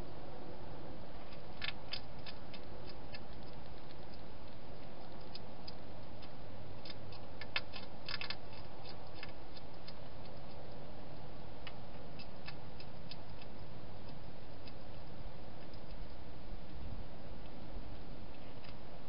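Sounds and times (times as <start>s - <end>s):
microphone hiss: 0.0s - 19.0s
hedgehog crunching dry food: 1.2s - 17.0s.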